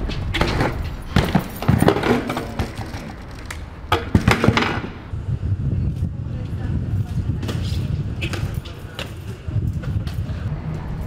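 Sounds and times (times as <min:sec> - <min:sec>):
bike knocks and clanks: 0:00.0 - 0:05.1
bike tyres rolling: 0:00.0 - 0:11.0.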